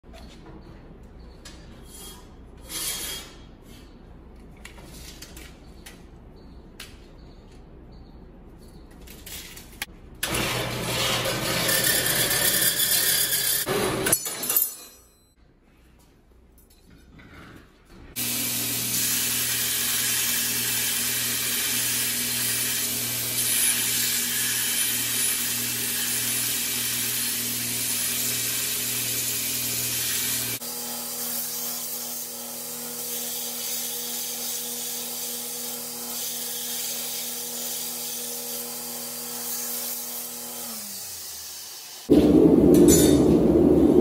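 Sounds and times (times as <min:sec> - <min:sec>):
belt grinder grinding steel: 0:10.2 - 0:14.1
metal-cutting bandsaw running: 0:10.2 - 0:14.2, 0:18.2 - 0:43.8.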